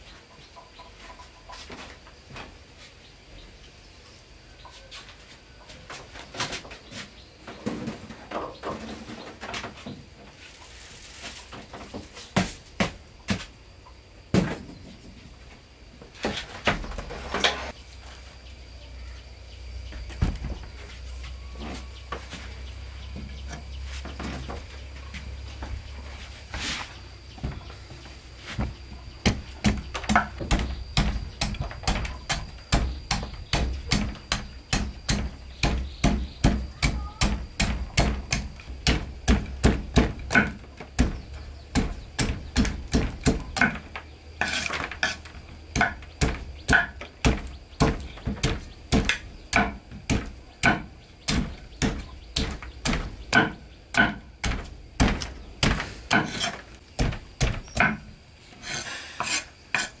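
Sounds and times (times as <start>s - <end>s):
knife chopping on wooden board: 45.8s - 58.0s.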